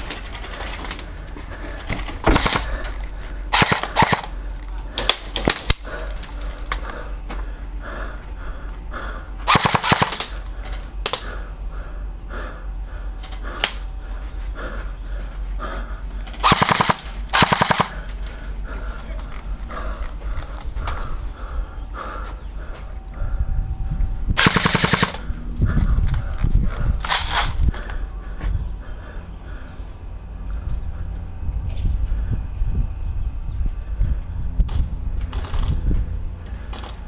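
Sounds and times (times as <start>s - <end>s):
scattered airsoft shots: 2.2s - 2.7s, 3.5s - 4.4s, 9.5s - 10.4s, 16.4s - 18.0s, 24.4s - 25.3s
airsoft gun bursts: 3.5s - 4.4s, 9.5s - 10.4s, 16.4s - 18.0s, 24.4s - 25.2s.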